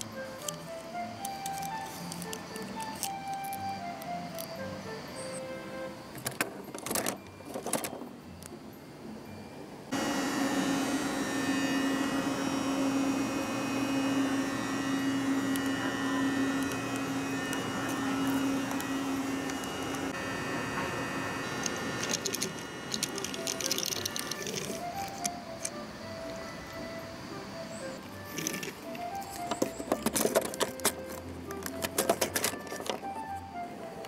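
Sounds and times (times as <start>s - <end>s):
electric train humming: 0.0s - 34.0s
plastic clicks: 21.6s - 26.8s, 28.0s - 33.3s.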